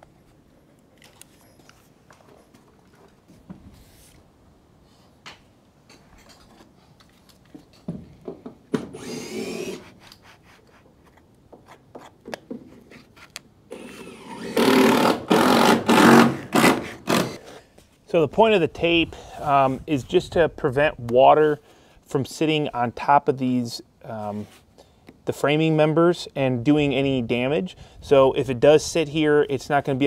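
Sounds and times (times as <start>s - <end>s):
cordless drill running: 8.9s - 9.9s, 13.7s - 17.4s.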